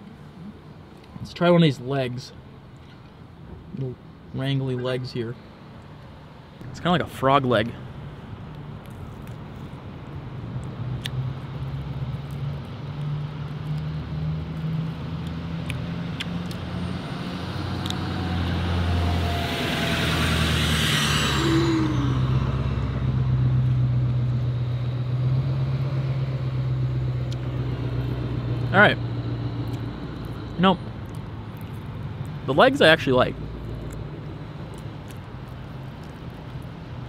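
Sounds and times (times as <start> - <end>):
engine humming: 7.5 - 37.0
vehicle passing: 10.4 - 37.0.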